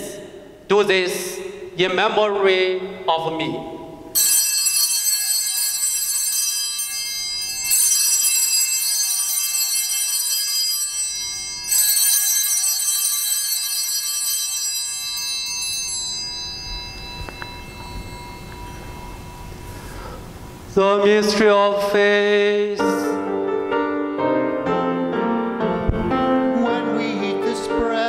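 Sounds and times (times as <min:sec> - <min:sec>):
altar bell ringing: 0:04.1 - 0:20.6.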